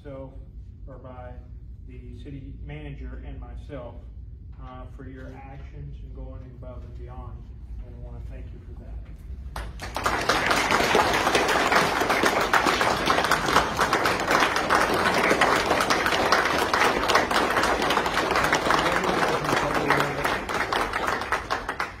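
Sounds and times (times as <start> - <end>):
audience applauding: 9.6 - 22.0.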